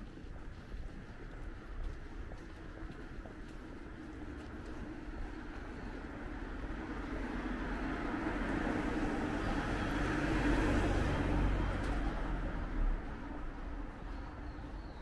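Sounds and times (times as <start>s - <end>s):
car passing by: 6.0s - 14.4s.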